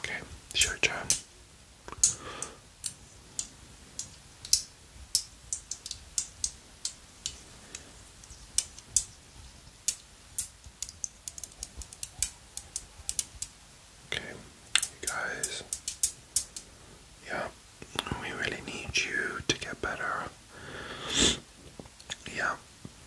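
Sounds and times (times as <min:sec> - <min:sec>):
stones clicking together: 0:00.5 - 0:01.3, 0:01.9 - 0:09.2, 0:09.8 - 0:13.5, 0:14.7 - 0:16.6.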